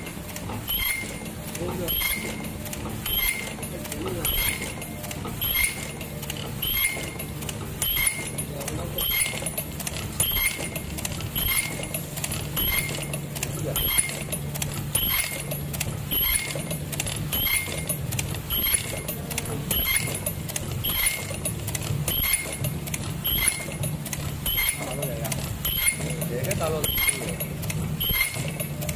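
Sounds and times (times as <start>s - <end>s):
motor hum: 0.0s - 28.9s.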